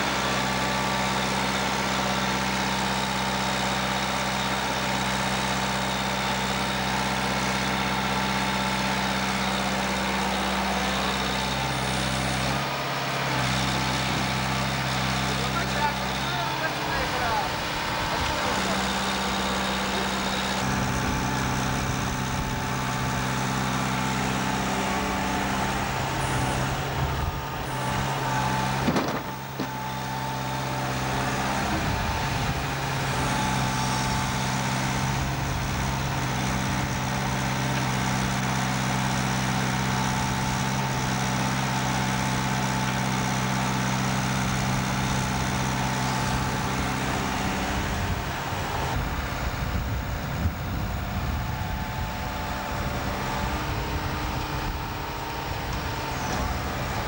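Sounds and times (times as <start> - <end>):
diesel engine running: 0.0 - 57.0.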